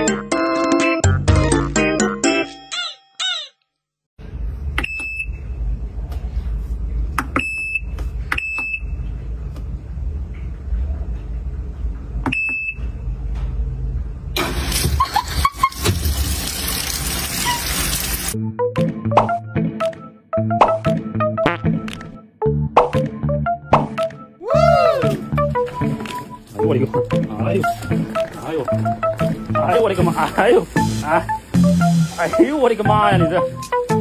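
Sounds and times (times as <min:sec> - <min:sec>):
washing machine hum: 0:05.9 - 0:18.4
water rushing into drum: 0:14.4 - 0:18.4.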